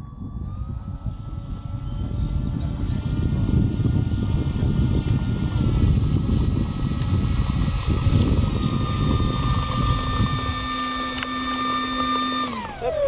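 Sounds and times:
model plane motor whining: 0.0s - 13.0s.

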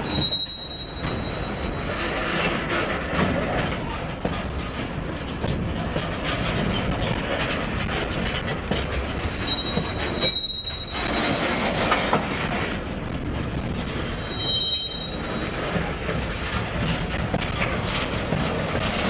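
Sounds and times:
high wheel squeal: 0.0s - 2.0s, 9.4s - 11.7s, 14.1s - 15.7s
train wheels clattering on rails: 0.0s - 19.0s.

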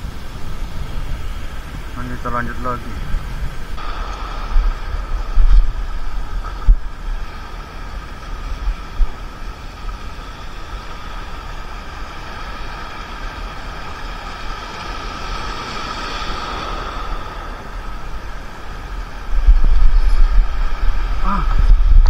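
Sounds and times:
sea waves washing over rocks: 0.0s - 22.0s
wind on microphone: 0.0s - 22.0s
low thumps: 3.7s - 7.0s.

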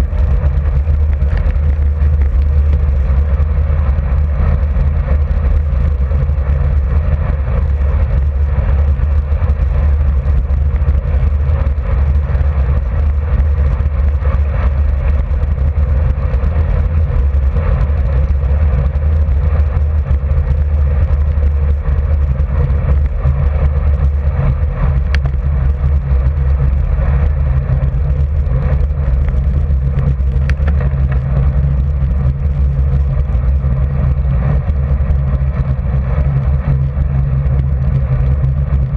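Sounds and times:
wind rushing over microphone: 0.0s - 38.9s.

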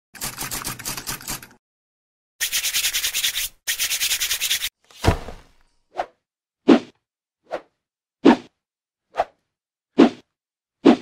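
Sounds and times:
scratchy rubbing on cardboard: 2.4s - 4.8s
cardboard box popping open: 4.9s - 5.6s.

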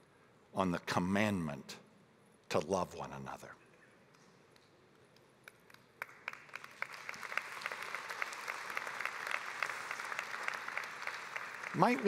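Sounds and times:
audience applause: 6.0s - 12.0s.

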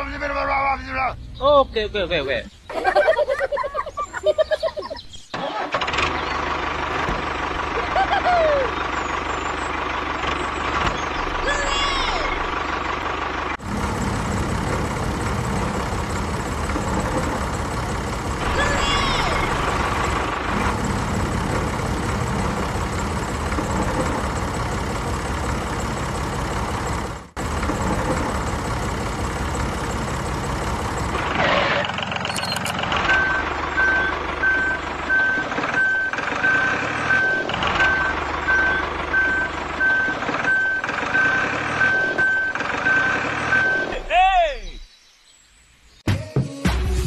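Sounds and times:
tractor engine running: 0.0s - 44.0s
reversing alarm beeping: 32.3s - 43.9s.

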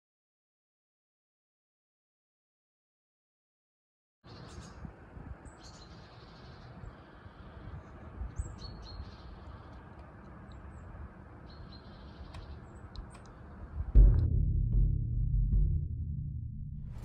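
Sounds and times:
small birds chirping: 4.3s - 13.8s
outdoor background rush: 4.3s - 14.2s
music with deep drum: 13.9s - 17.0s.

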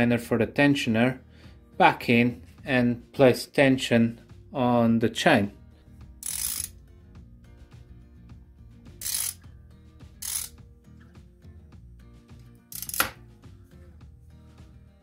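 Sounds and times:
soft background music: 0.0s - 15.0s
socket ratchet clicking: 6.2s - 6.8s, 9.0s - 9.4s, 10.2s - 10.6s, 12.7s - 13.2s.

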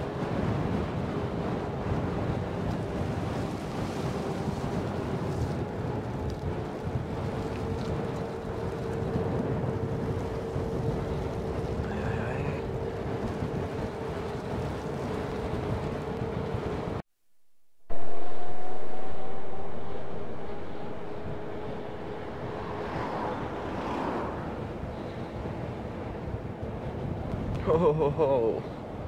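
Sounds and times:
wind on microphone: 0.0s - 17.0s, 17.9s - 29.0s
electric motor whine: 17.9s - 24.0s.

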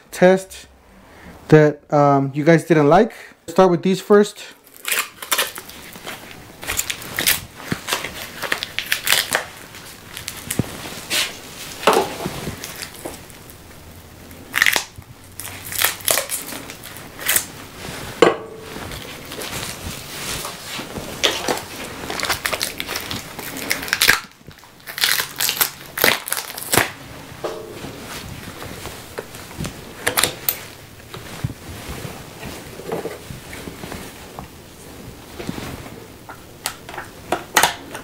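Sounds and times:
plastic packaging crackling: 4.6s - 34.4s.

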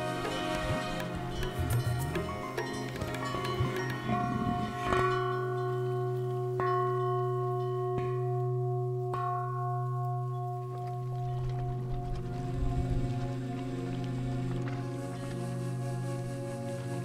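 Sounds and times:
low drone: 0.0s - 6.6s
bell-like strikes ringing: 1.3s - 10.8s.

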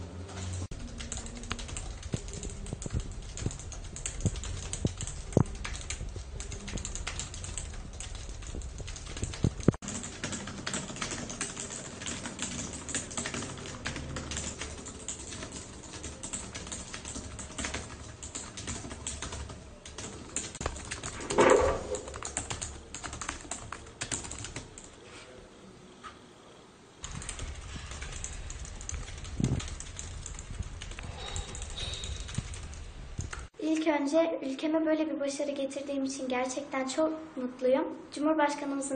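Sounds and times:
fast typing on keyboard: 0.7s - 25.0s, 27.0s - 33.5s.

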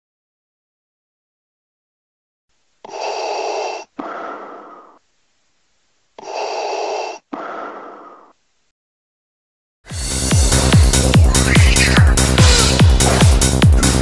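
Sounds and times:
regulator hissing inhale: 2.8s - 5.0s, 6.2s - 8.3s, 11.8s - 14.0s
diver exhaling through regulator: 6.2s - 8.3s, 11.8s - 14.0s.

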